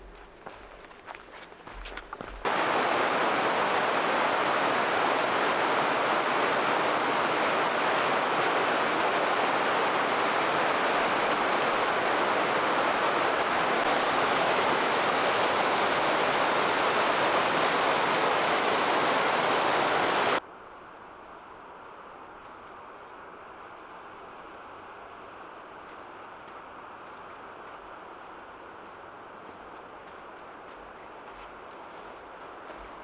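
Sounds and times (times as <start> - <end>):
stream rushing over boulders: 1.6 - 20.4.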